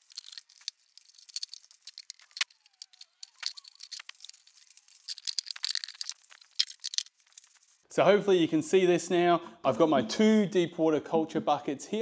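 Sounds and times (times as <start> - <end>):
plastic tubing clicking and rustling: 0.0 - 7.8.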